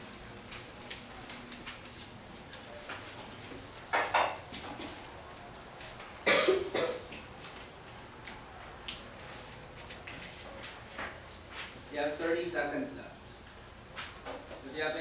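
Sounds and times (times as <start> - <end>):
low room noise: 0.0 - 15.0
person coughing: 6.2 - 7.0.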